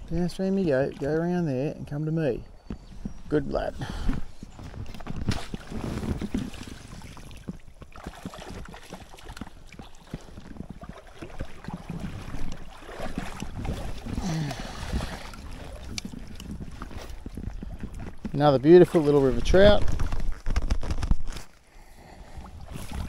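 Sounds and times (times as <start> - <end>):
stream water splashing: 3.6 - 17.4, 22.2 - 23.0.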